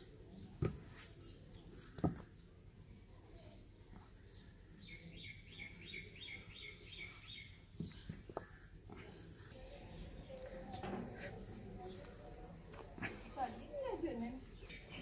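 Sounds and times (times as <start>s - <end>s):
small bird chirping: 3.2s - 8.8s.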